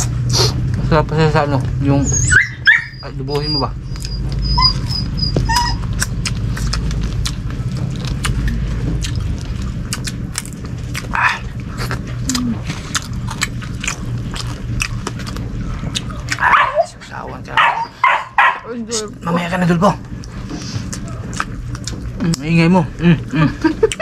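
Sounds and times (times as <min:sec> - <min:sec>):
people eating with hands: 0:00.0 - 0:02.0, 0:02.8 - 0:24.0
low hum: 0:00.0 - 0:24.0
dog whining: 0:01.9 - 0:06.2, 0:16.3 - 0:19.1.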